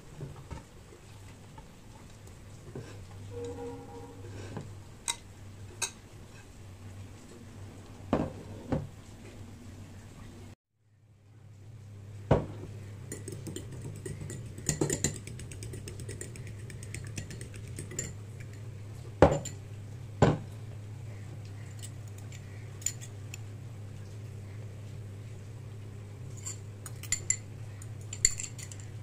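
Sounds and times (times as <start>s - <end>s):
low steady hum: 0.0s - 29.0s
eggs beaten in glass bowl: 13.0s - 18.7s.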